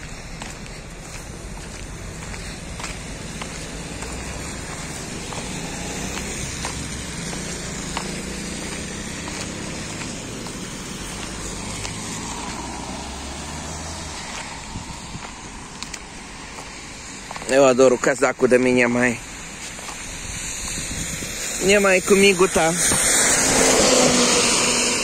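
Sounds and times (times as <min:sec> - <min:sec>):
car engines humming: 0:00.0 - 0:25.0
tyres on wet road: 0:00.0 - 0:25.0.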